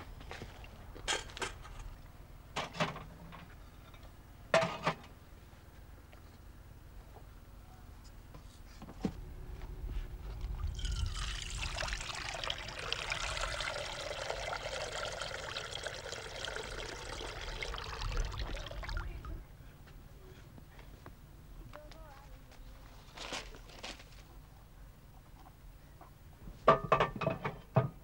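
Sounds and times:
liquid pouring into a basin: 10.4s - 19.4s.

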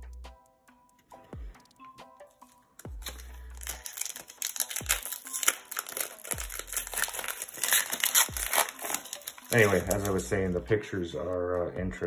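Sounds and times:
plastic wrapper crinkling and tearing: 2.8s - 10.3s.

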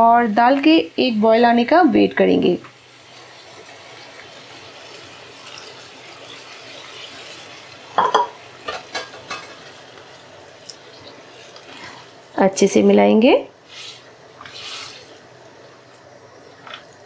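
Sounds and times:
food sizzling in a pan: 0.0s - 17.0s
spatula scraping pan: 5.4s - 10.2s, 13.7s - 15.2s
stirring knocks and scrapes: 5.4s - 12.0s.

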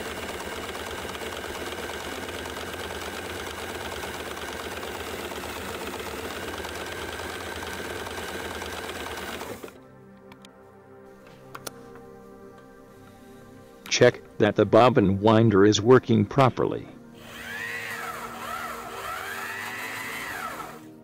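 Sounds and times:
sewing machine motor whirring: 0.0s - 9.8s, 17.2s - 21.0s
soft background music: 6.6s - 21.0s.

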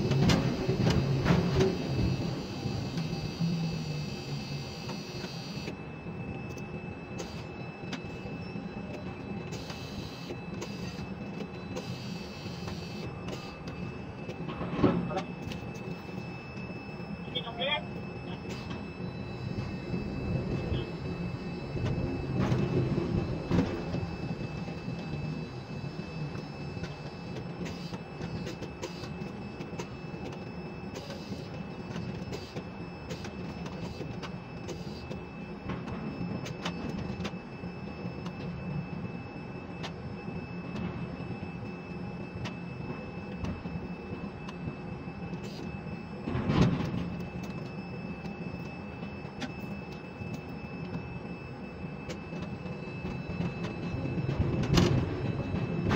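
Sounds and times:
crane mechanical rumble and hum: 0.0s - 55.9s
faint high steady tone: 11.6s - 22.2s.

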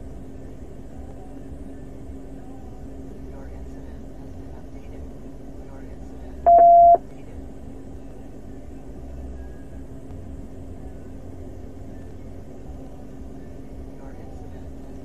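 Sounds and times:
low car hum: 0.0s - 15.0s
radio beep: 6.5s - 7.0s.

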